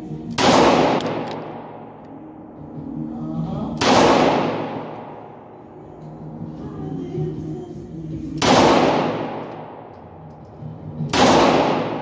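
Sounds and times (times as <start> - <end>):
background music: 0.0 - 12.0
gunshots ringing indoors: 0.3 - 2.1, 3.8 - 6.2, 8.4 - 10.2, 11.0 - 12.0.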